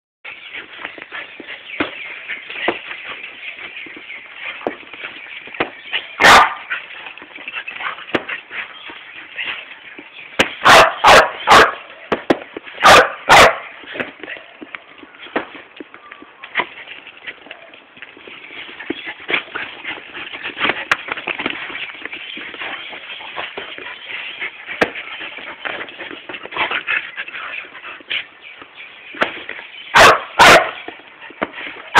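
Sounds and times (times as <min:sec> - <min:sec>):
dogs scuffling and playing: 0:00.3 - 0:31.9
paws shuffling: 0:00.3 - 0:31.9
dog barking: 0:06.2 - 0:06.7, 0:10.6 - 0:11.8, 0:12.8 - 0:13.7, 0:29.9 - 0:30.9.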